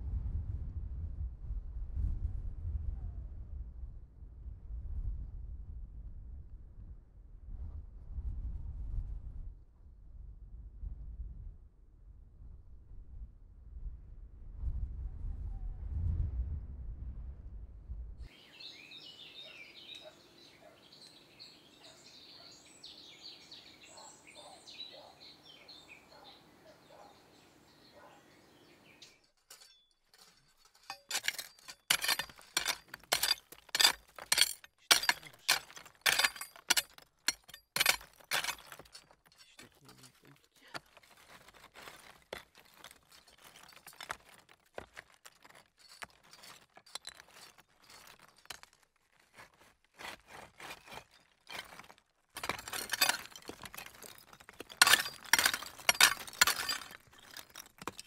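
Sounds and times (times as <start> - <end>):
stones clinking and crunching: 29.1 - 58.0.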